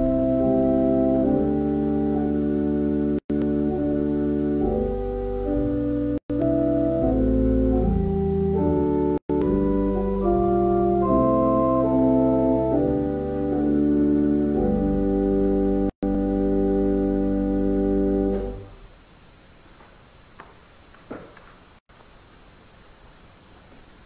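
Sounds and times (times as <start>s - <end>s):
organ playing slow chords: 0.0s - 18.8s
faint hiss: 16.2s - 24.0s.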